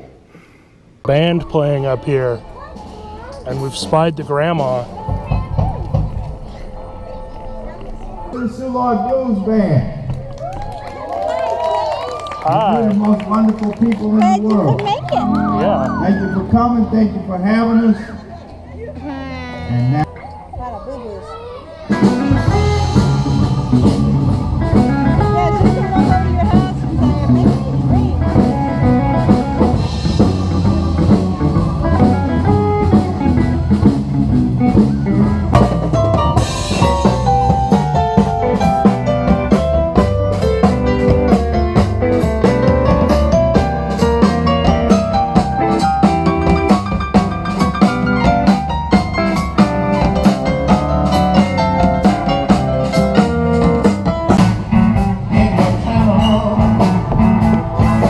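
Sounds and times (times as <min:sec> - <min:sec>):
blues band playing: 0:01.1 - 0:58.0
drum kit beat: 0:21.9 - 0:58.0.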